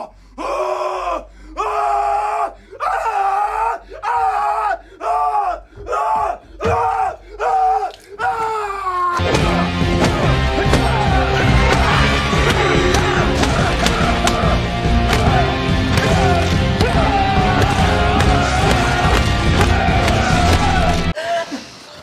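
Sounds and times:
music: 9.2 - 21.2
man screaming: 10.3 - 21.3.

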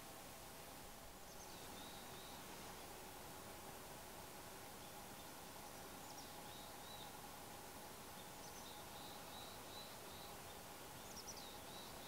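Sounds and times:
small bird calling: 1.2 - 2.5, 8.2 - 12.0.

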